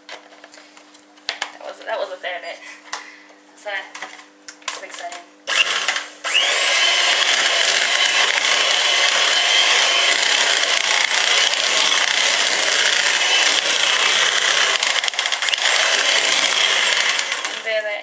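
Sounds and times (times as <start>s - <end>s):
electric hand mixer whining: 5.5s - 17.8s.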